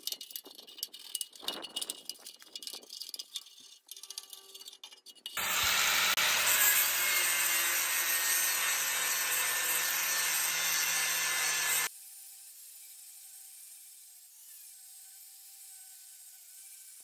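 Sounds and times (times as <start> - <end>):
angle grinder grinding metal: 3.9 - 11.9.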